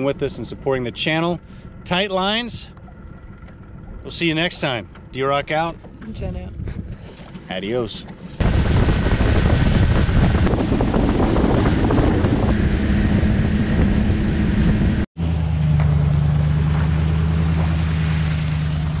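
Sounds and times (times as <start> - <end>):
outboard engine drone: 0.0 - 19.0
wind buffeting microphone: 5.9 - 7.2, 8.4 - 15.1
water rushing past hull: 6.6 - 15.1, 16.0 - 19.0.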